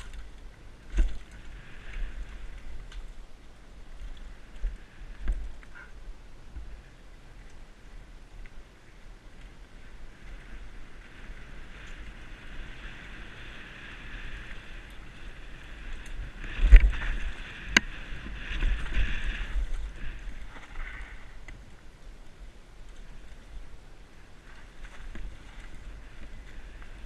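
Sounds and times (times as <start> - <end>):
bike tyres running over dirt: 0.0 - 27.0
wind rush on microphone: 0.0 - 27.0
bike rattling over bumps: 9.3 - 21.7.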